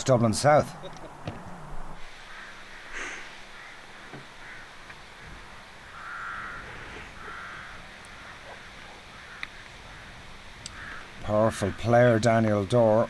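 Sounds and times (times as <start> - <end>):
faint outdoor background noise: 0.0 - 13.0
crow cawing: 2.2 - 12.1.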